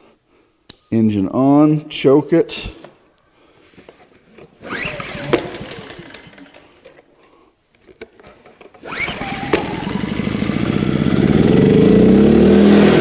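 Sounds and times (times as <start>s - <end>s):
generator engine running: 4.6s - 6.6s, 8.8s - 13.0s
recoil starter pull whir: 4.6s - 6.7s, 8.7s - 13.0s.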